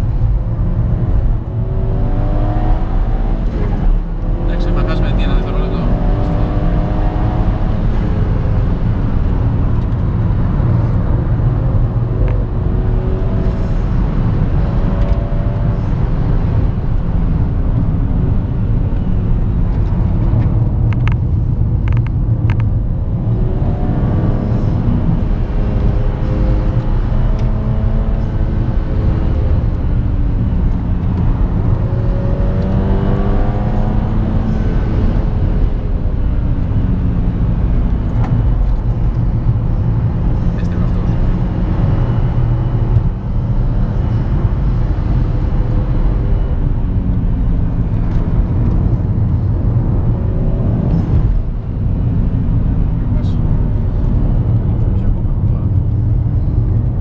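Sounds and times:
car engine accelerating: 0.0s - 57.0s.

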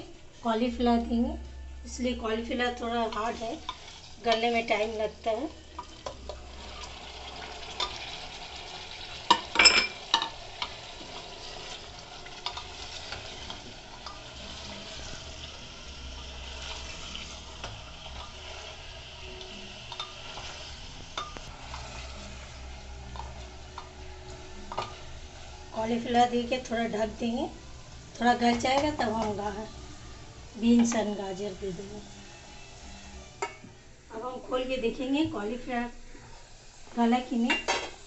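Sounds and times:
steady sizzle: 0.0s - 38.0s
wooden spoon scraping in pot: 3.0s - 4.5s, 10.6s - 15.6s, 16.2s - 19.2s, 19.9s - 25.8s.

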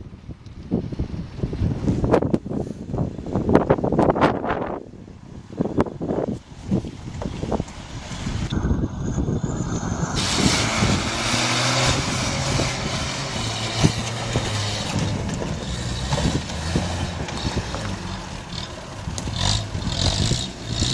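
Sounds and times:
vehicle engine running at low revs: 6.7s - 20.9s.

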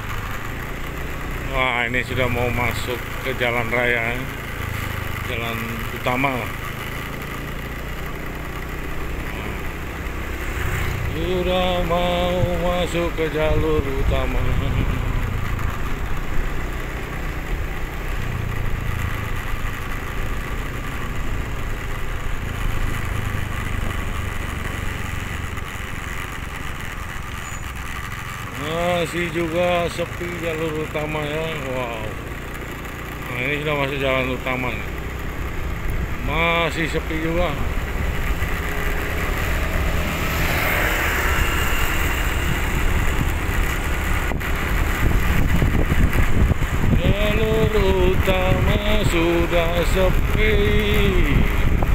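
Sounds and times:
vehicle engine running: 0.0s - 51.9s
wind and road noise: 0.0s - 51.9s
wind rumbling on microphone: 37.5s - 51.9s.

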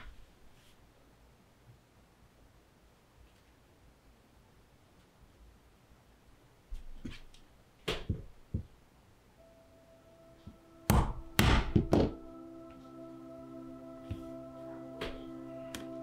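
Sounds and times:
soft background music: 9.4s - 16.0s.

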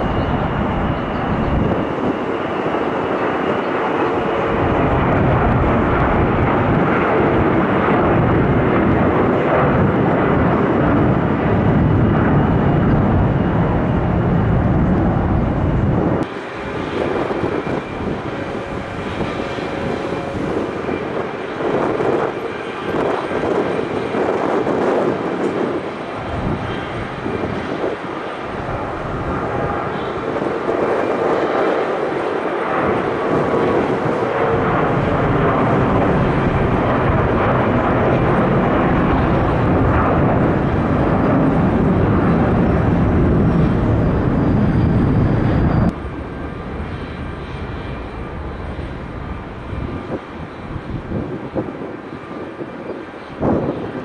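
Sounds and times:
jet airliner engine rumble: 0.0s - 54.0s.

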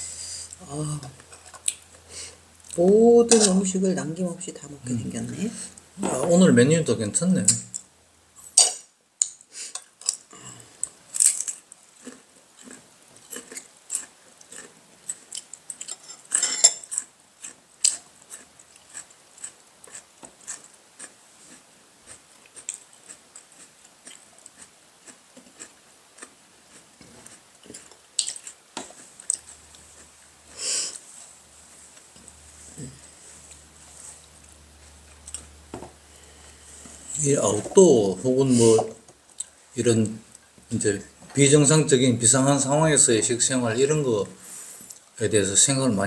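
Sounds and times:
people chewing food: 0.4s - 3.7s, 9.2s - 41.3s.

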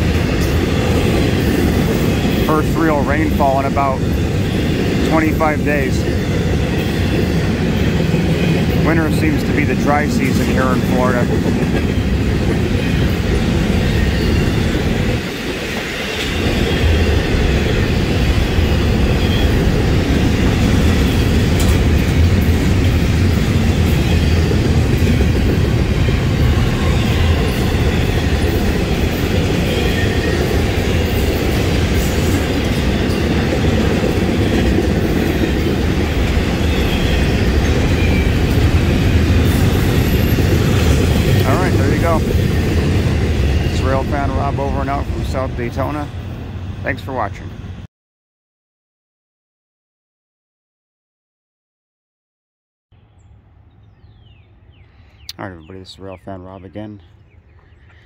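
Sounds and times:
freight train wheels clickety-clack: 0.0s - 46.2s.

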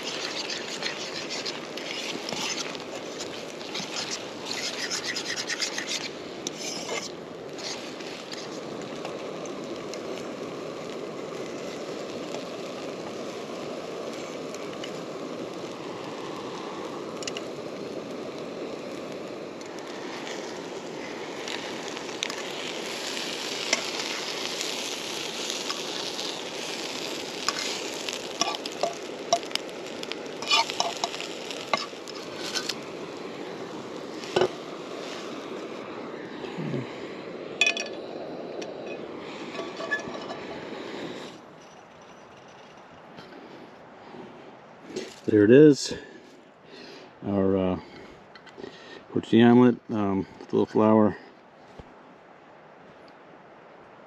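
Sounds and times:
metal fork scraping a pan: 0.0s - 7.8s, 28.4s - 29.5s, 30.4s - 32.7s, 39.5s - 40.4s
eggs sizzling in a frying pan: 0.0s - 35.8s, 37.6s - 42.0s.

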